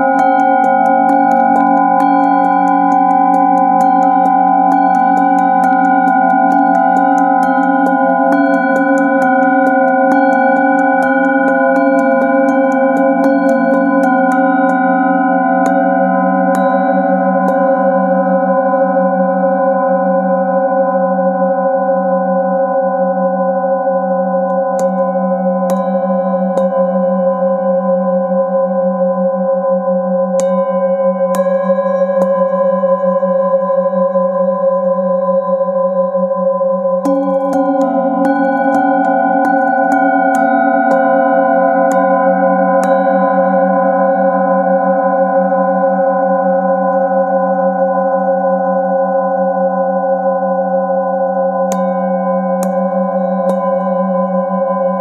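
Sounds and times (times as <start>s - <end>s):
mallet striking singing bowl: 0.0s - 18.0s, 24.5s - 27.1s, 30.4s - 33.3s, 37.0s - 41.3s, 42.8s - 43.5s, 51.7s - 55.0s
singing bowls humming: 0.0s - 55.0s.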